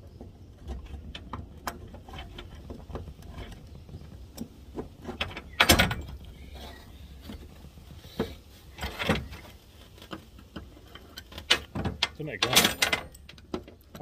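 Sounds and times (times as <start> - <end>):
metal tools clinking: 10.8 - 13.4.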